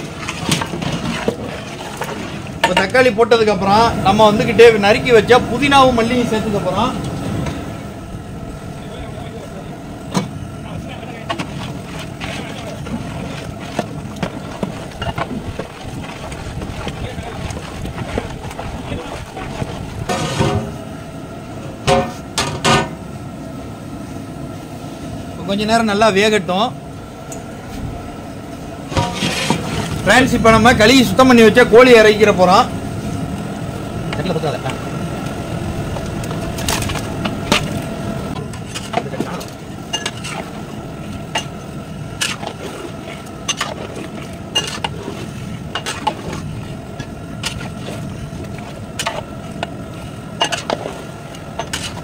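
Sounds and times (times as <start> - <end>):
pot and utensils clattering: 0.0 - 3.0, 28.9 - 30.0, 36.6 - 40.6, 41.3 - 49.3, 50.4 - 52.0
steady hum: 0.0 - 52.0.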